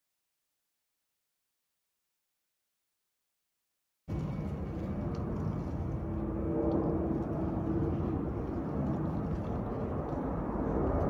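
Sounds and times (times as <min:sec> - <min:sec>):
jet airliner engine rumble: 0:04.1 - 0:11.0.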